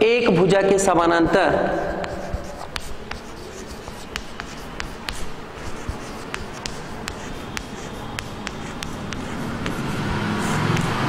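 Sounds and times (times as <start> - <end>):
steady background noise: 0.0 - 11.0
chalk taps: 1.2 - 11.0
chalk scratching on blackboard: 1.3 - 11.0.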